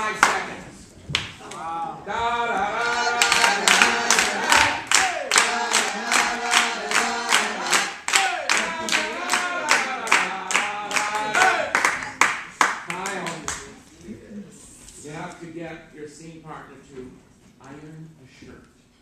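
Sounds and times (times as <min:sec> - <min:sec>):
people clapping to a beat: 0:00.0 - 0:01.6, 0:02.8 - 0:13.8
group singing: 0:00.0 - 0:12.4.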